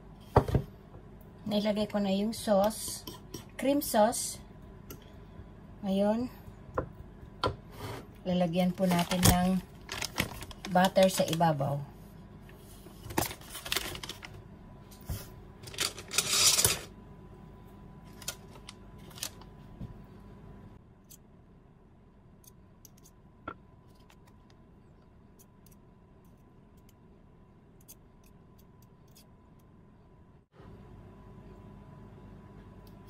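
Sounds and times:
paper wrapper rustling: 8.8s - 11.6s, 13.0s - 14.4s, 15.6s - 16.8s, 18.1s - 19.5s.

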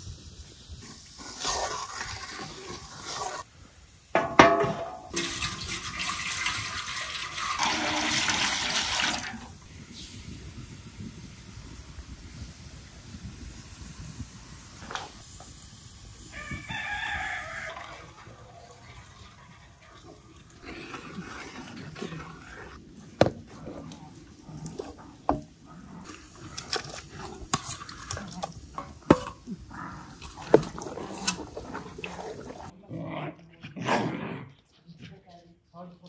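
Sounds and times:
wooden spoon knocking metal pot: 4.2s - 5.4s
rooster crowing: 16.3s - 18.2s.

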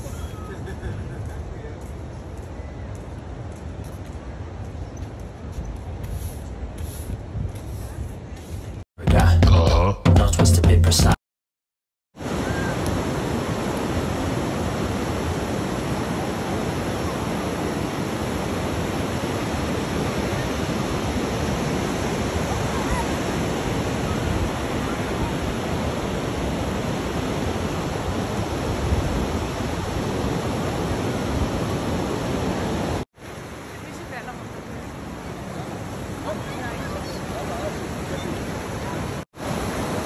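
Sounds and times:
ocean surf breaking: 12.2s - 40.0s.

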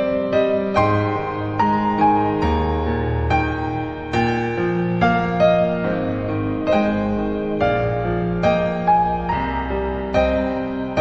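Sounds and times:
slow gentle piano music: 0.0s - 11.0s.

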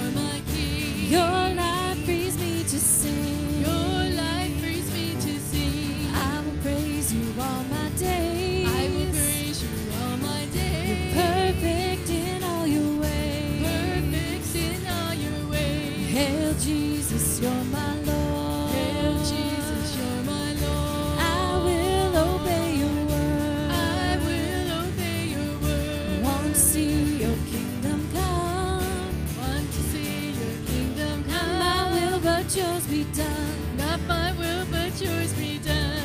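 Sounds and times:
voices singing praise song: 0.0s - 36.0s.

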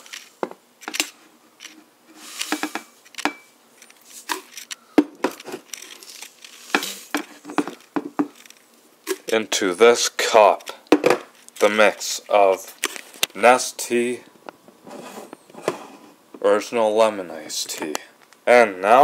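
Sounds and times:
knocks and clatters on countertop: 6.7s - 8.4s, 10.9s - 11.3s.

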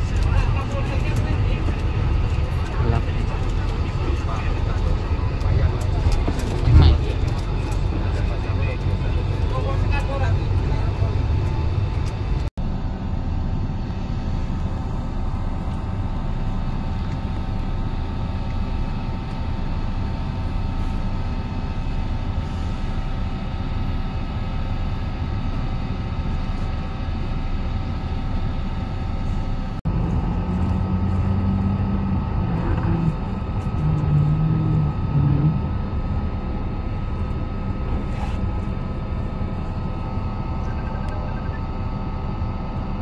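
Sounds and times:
constant hum tones: 0.0s - 43.0s
ferry engines droning: 0.0s - 43.0s.

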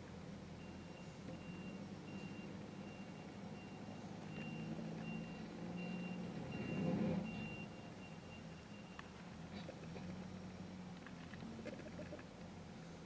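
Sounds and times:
diesel engine running: 0.0s - 13.0s
backup alarm beeping: 0.6s - 9.2s.

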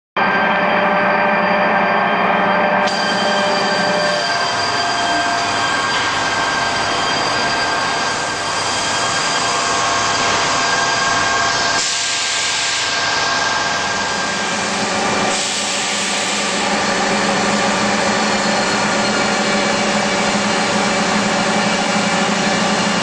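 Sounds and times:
machining center tones: 0.2s - 9.7s.

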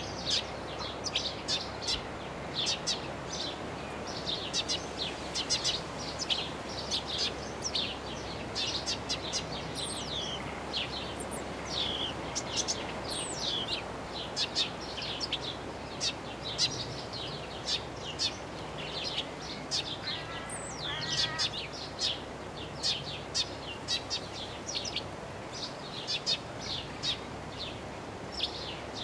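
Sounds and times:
low background noise: 0.0s - 29.0s
sparrow chirping: 0.0s - 29.0s.

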